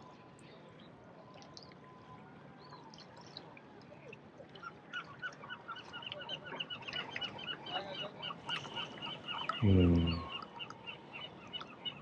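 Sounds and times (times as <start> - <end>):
birds chirping: 4.9 - 12.0.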